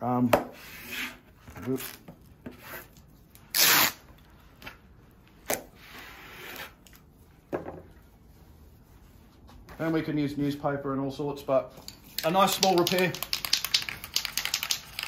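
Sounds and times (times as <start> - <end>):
tape rubbing: 1.7 - 4.1, 11.8 - 15.0
tape tearing: 2.7 - 4.1
tape ripping off roll: 3.4 - 4.1.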